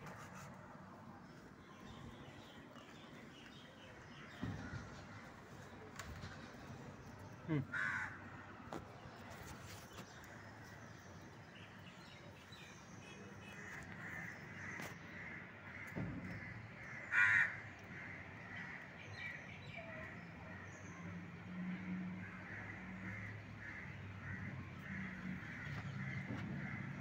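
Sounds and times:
crow cawing: 7.5 - 8.2, 13.6 - 18.8, 22.2 - 27.0.

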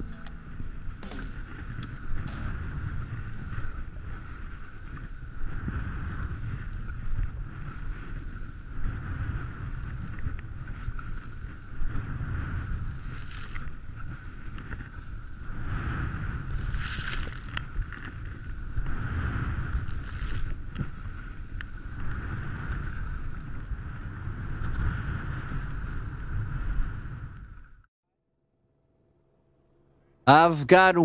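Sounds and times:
wind buffeting microphone: 0.0 - 27.7
skis hissing through snow: 2.8 - 23.6.

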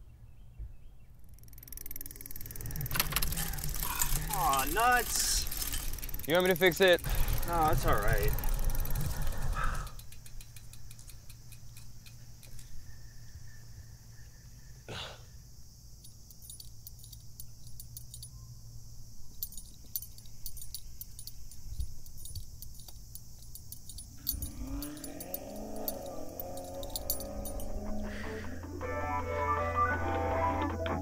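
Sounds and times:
bicycle chain clicking and rattling: 1.2 - 12.9, 16.0 - 28.0.

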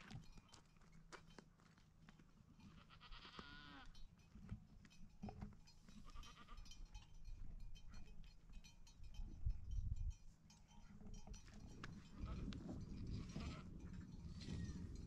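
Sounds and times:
faint goat bleating: 2.7 - 3.9, 6.0 - 6.6.

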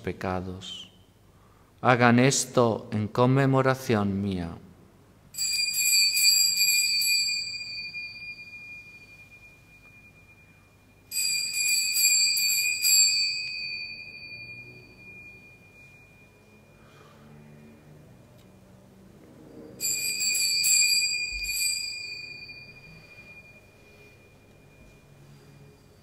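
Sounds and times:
altar bells ringing: 5.3 - 18.3, 19.6 - 26.0.

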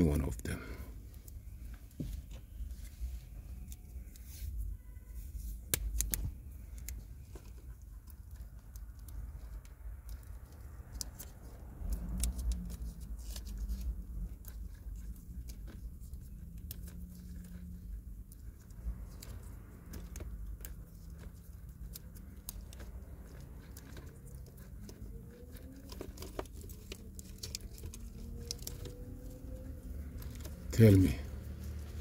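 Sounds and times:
wires clicking and rustling: 0.0 - 32.0.

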